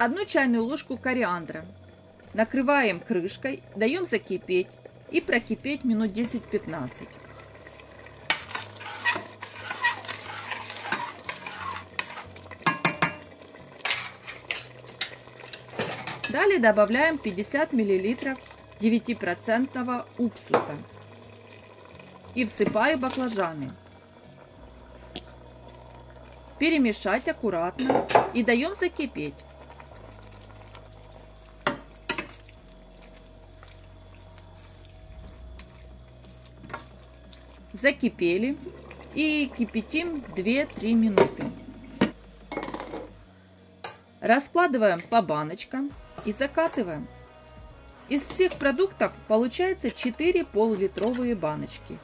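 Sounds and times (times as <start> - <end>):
wet squelching stirring: 4.8 - 18.9, 20.0 - 43.2, 46.0 - 52.0
metal ladle scraping a pot: 7.6 - 13.2, 13.8 - 16.4
metal spoon knocking on pot: 12.6 - 13.3.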